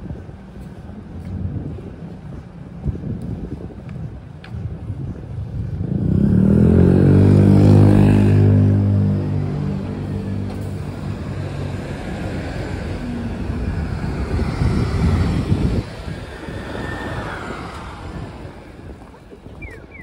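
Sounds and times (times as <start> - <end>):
vehicle engine passing: 5.8 - 19.0.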